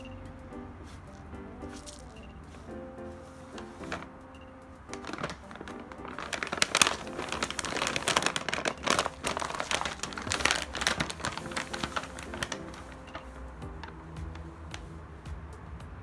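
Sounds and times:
paper bag crinkling: 1.7 - 4.1, 4.9 - 14.0.

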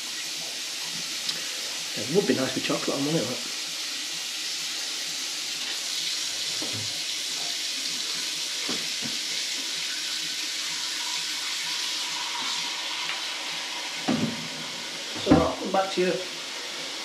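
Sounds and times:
water running from tap: 0.0 - 17.0.

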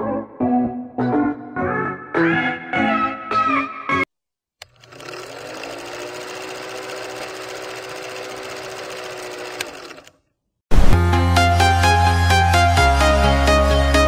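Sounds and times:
click: 4.6 - 4.9
film projector clatter: 4.6 - 10.2.

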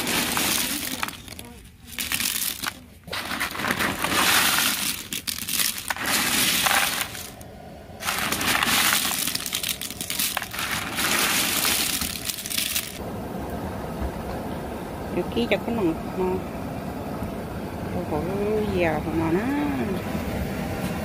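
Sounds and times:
prawn crackers clattering in plastic tub: 0.0 - 7.4, 8.0 - 13.0.

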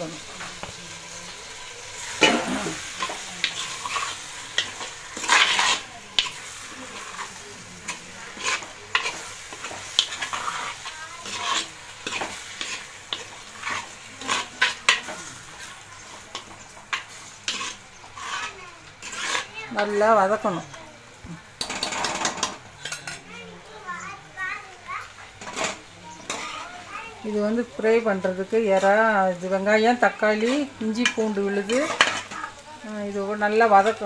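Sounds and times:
light sizzle: 0.0 - 34.0
spoon scraping and clinking pot: 2.0 - 20.7, 21.6 - 23.2, 25.3 - 26.6, 30.3 - 34.0.

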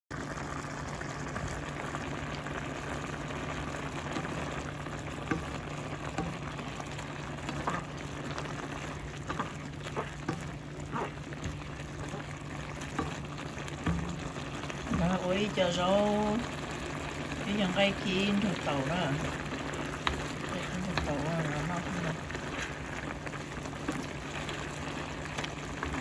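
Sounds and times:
food bubbling and sizzling in pan: 0.1 - 26.0
wooden spatula clicking: 5.2 - 15.0, 19.2 - 21.6.

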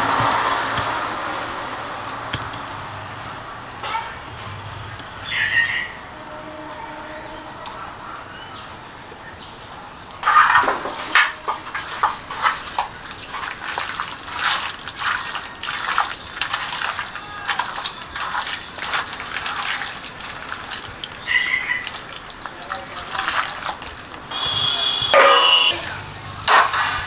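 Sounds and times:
hand squelching raw meat: 11.6 - 24.3.

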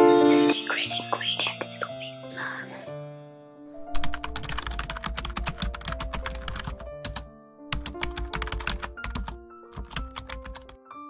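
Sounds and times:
background music sustained notes: 0.0 - 11.0
rapid sharp clicks: 4.0 - 7.2, 7.8 - 10.8.

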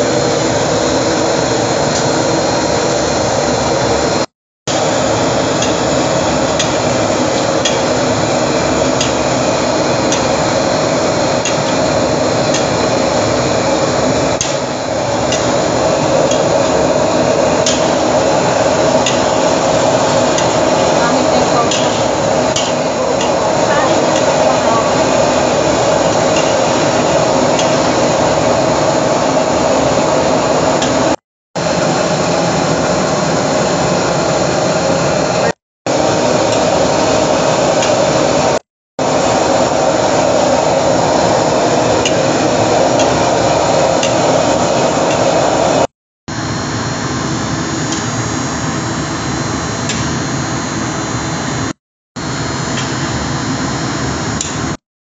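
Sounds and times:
gas burner roaring: 0.0 - 54.8.

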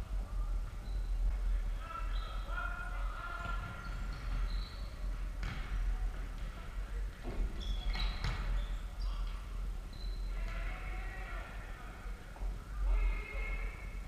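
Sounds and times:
shoe squeaks: 0.8 - 1.2, 3.4 - 5.1, 7.5 - 9.3, 9.9 - 10.5
ball bouncing on wooden floor: 3.4 - 6.6, 7.2 - 8.6.

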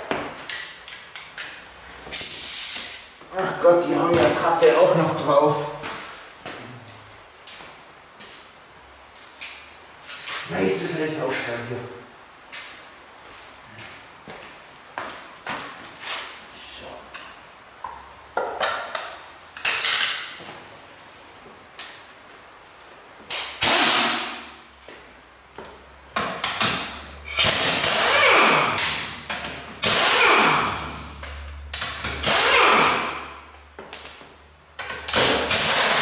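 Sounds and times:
pneumatic impact wrench bursts: 2.1 - 3.1, 23.4 - 24.5, 27.2 - 29.1, 29.8 - 31.1, 32.1 - 33.3, 35.1 - 36.0.

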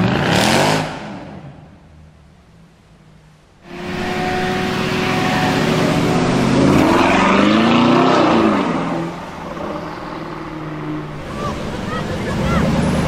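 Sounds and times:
car engine accelerating past: 3.6 - 13.0.

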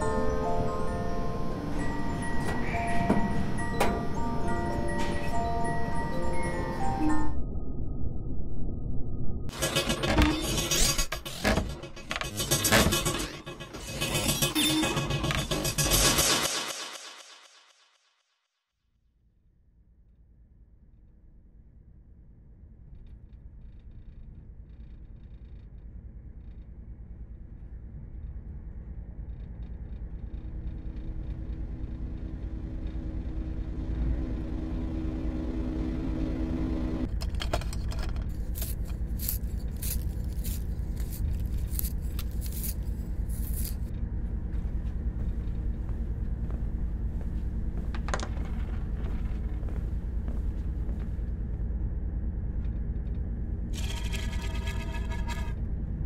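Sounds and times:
low rumbling drone: 0.0 - 10.4, 21.6 - 56.0
steady hum: 20.8 - 56.0.

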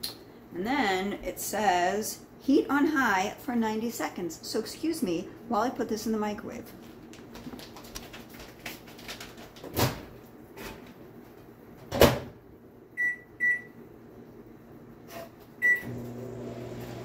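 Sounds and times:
microwave oven humming: 9.8 - 17.0.

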